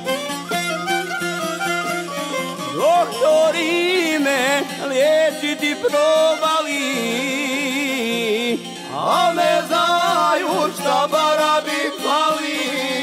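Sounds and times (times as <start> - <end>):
fiddle melody with vibrato: 0.0 - 13.0
plucked-string accompaniment: 0.0 - 13.0.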